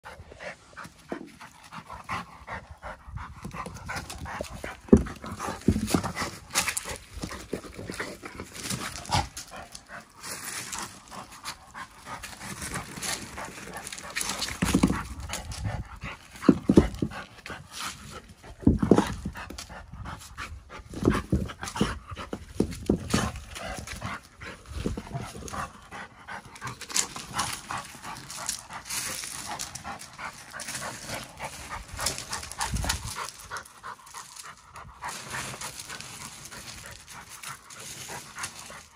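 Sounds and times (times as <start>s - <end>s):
dog panting: 0.0s - 38.9s
ball knocking and scraping on rocks: 0.6s - 38.9s.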